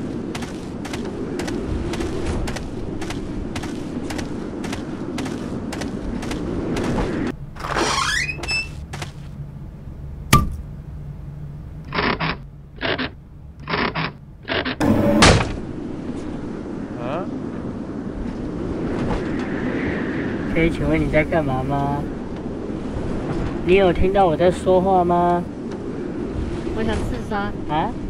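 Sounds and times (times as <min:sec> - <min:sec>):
steady hum: 0:00.0 - 0:28.0
cartoon footsteps: 0:00.1 - 0:09.4
rising creak: 0:07.5 - 0:09.3, 0:11.8 - 0:15.6
wooden shutter scraping: 0:07.6 - 0:09.3
sharp knock: 0:10.3 - 0:10.6.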